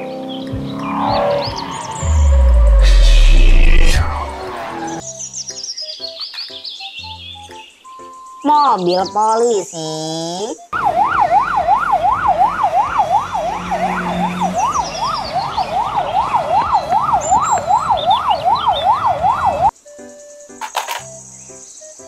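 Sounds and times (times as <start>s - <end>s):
police siren yelping: 0.9s - 5.0s, 10.7s - 19.7s.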